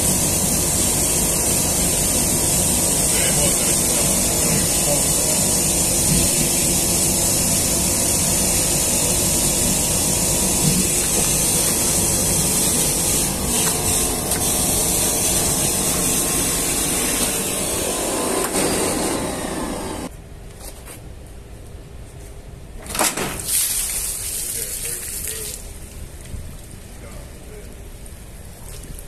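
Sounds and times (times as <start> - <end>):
hose sucking up water: 0.0 - 17.6
wet vacuum cleaner running: 0.0 - 20.1.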